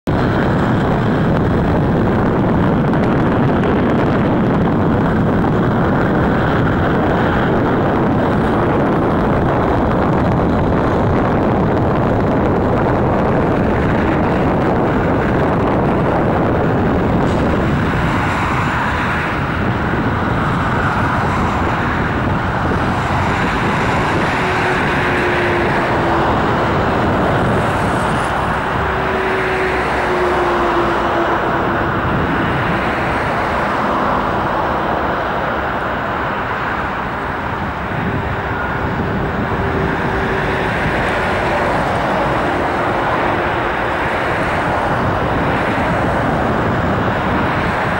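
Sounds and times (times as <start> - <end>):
road traffic noise: 0.0 - 47.9
wind buffeting microphone: 0.0 - 47.9.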